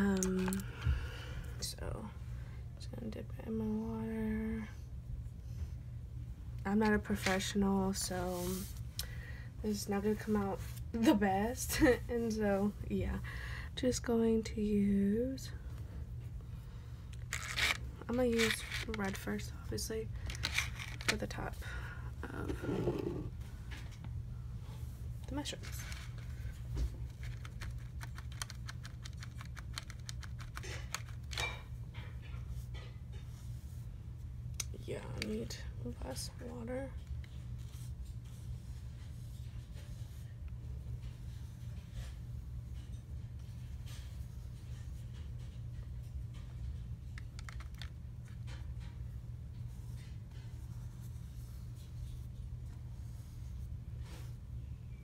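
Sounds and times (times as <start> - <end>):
steady low hum: 0.0 - 55.0
brush strokes on paper: 8.3 - 8.8.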